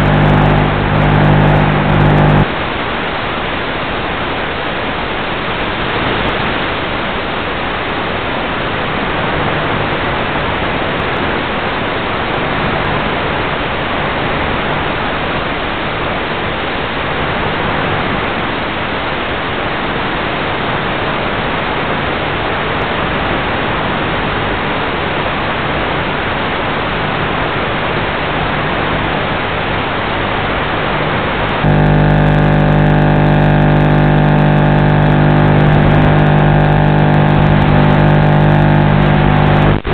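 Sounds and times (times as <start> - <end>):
electric motor buzz: 0.0 - 2.5, 31.6 - 39.9
faint low hum: 0.0 - 2.5, 31.6 - 39.9.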